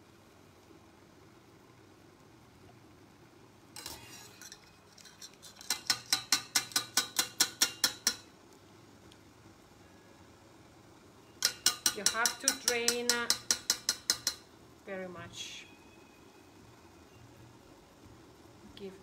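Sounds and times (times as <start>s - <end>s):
utensil clicking against metal pot: 5.1s - 8.3s, 11.4s - 14.4s.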